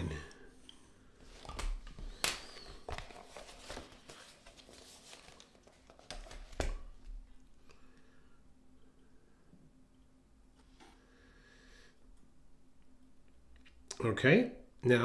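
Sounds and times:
paper rustling and sliding: 1.4s - 6.6s.

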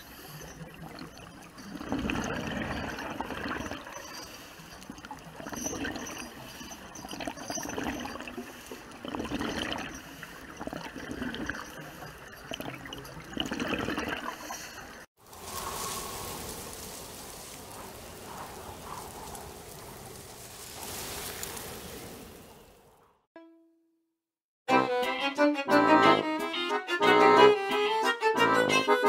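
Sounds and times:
water bubbling and gurgling: 0.0s - 15.1s.

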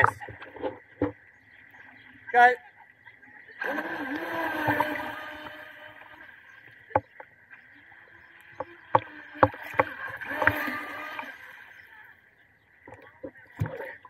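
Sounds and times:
faint electric motor whine: 3.6s - 13.0s.

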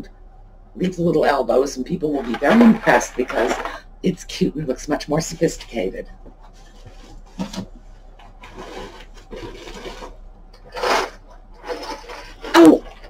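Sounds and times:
packages rustling and rubbing: 2.2s - 3.8s, 6.5s - 13.0s
scrape: 8.4s - 13.0s.

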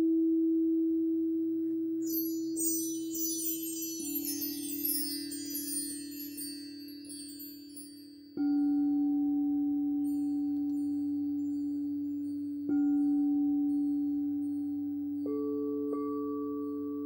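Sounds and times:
high metal chime tones: 2.0s - 16.8s
crystal singing bowl ringing: 2.0s - 17.0s.

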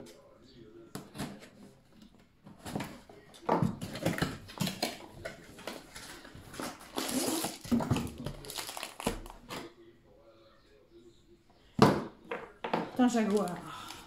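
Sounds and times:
cardboard rustling: 2.5s - 9.7s
plastic film crinkling: 4.5s - 9.6s.

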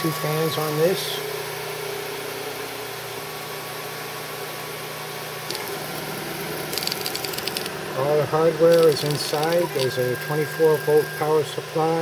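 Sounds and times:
stepper motors humming: 0.0s - 4.5s, 5.2s - 12.0s
cooling fans whirring: 0.0s - 12.0s.

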